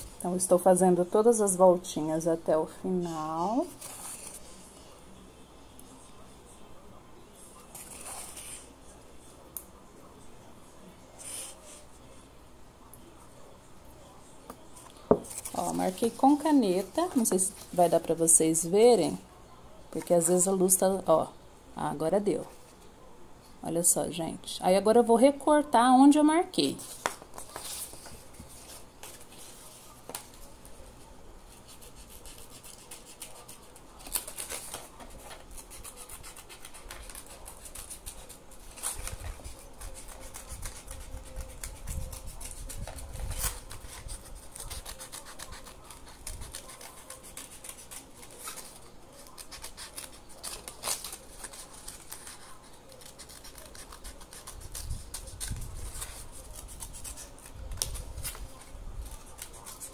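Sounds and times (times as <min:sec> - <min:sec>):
paper being handled: 0:03.4 - 0:05.0, 0:15.0 - 0:18.6, 0:26.6 - 0:59.9
scissors snipping paper: 0:31.6 - 0:59.9.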